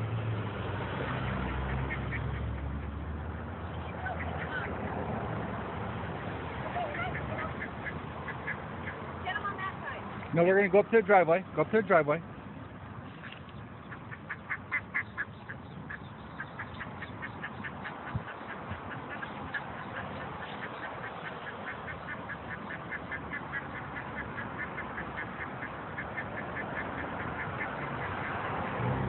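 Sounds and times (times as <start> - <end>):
traffic hum: 0.0 - 29.0
ducks calling: 1.0 - 2.9, 3.8 - 5.0, 6.1 - 9.6, 13.1 - 28.8.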